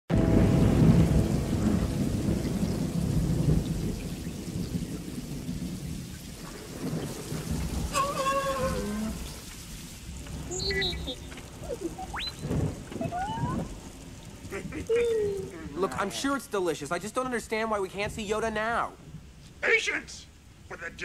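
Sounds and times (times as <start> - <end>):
thunder rumble: 0.1 - 19.4
steady rain falling: 0.1 - 21.0
robot wavering whistle: 11.9 - 12.5.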